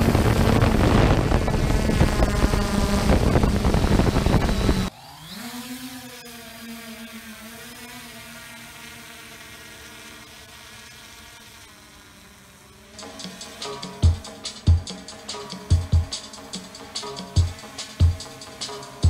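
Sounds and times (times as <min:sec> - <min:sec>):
propeller and wind rush: 0:00.0 - 0:05.4, 0:12.6 - 0:19.0
drone propeller hum: 0:00.0 - 0:19.0.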